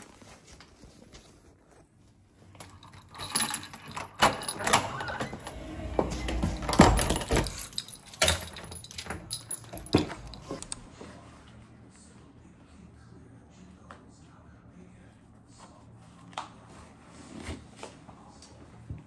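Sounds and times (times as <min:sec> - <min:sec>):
keys jangling: 0:02.5 - 0:10.9.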